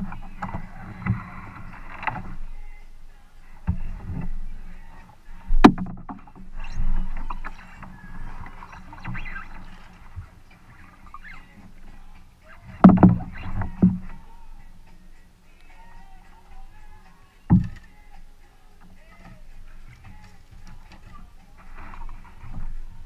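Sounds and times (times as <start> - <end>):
water splashing and dripping: 3.7 - 15.8
knocks against kayak hull: 5.6 - 6.3, 12.8 - 14.2, 17.5 - 17.9.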